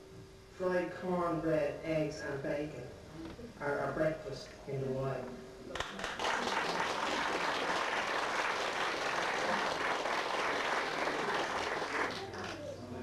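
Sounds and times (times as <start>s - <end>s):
audience applauding: 5.8s - 12.8s.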